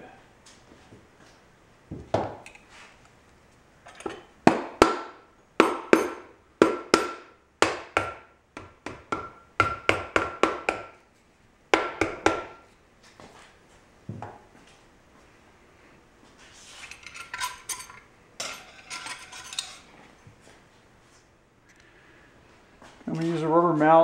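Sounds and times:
rubber mallet tapping metal: 5.6s - 11.0s.

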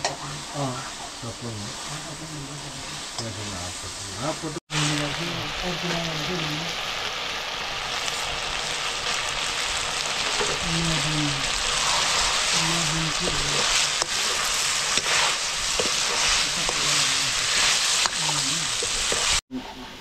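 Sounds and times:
food sizzling in hot oil: 0.0s - 19.5s.

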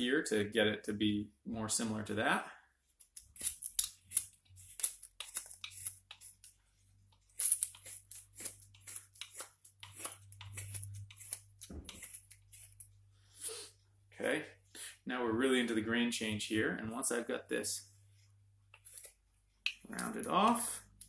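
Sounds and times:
knife whittling wood: 3.0s - 6.6s, 7.2s - 12.9s.

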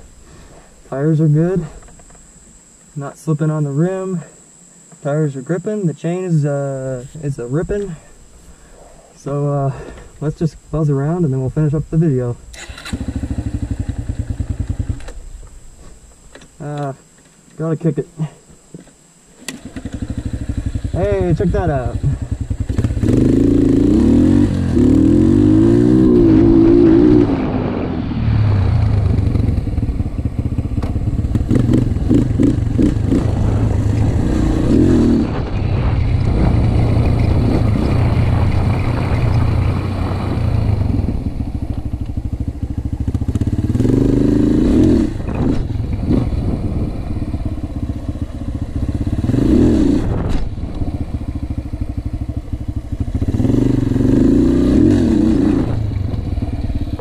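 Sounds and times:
dirt bike engine revving: 12.0s - 15.4s, 19.4s - 57.0s.

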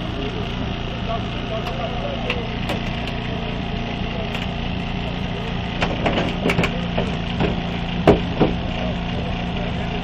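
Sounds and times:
small engine running: 0.0s - 10.0s
car metal creaking and cracking: 5.8s - 8.6s.

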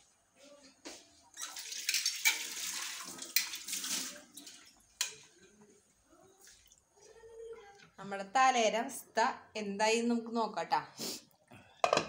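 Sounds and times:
water running: 1.4s - 5.5s.

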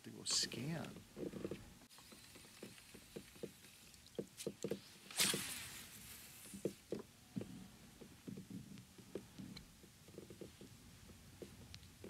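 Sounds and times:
brief hiss: 5.0s - 6.7s.

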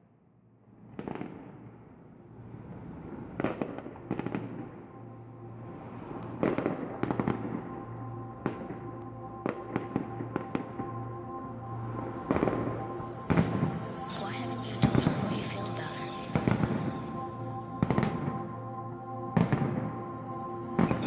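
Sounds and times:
fireworks bursting: 3.1s - 4.8s, 12.3s - 18.4s, 20.7s - 21.0s.

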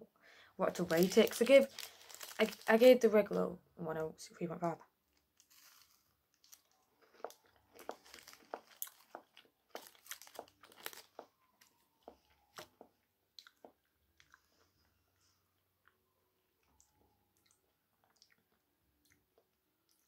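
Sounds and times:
wrapper crinkling: 0.7s - 3.1s, 5.1s - 12.7s.

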